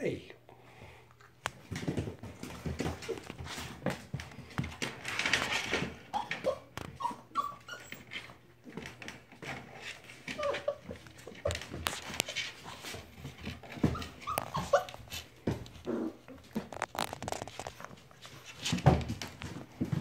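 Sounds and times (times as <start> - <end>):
clicks and scrapes of movement: 1.2 - 6.1, 7.8 - 20.0
puppies whimpering: 5.8 - 8.4, 10.0 - 12.8, 13.6 - 16.4.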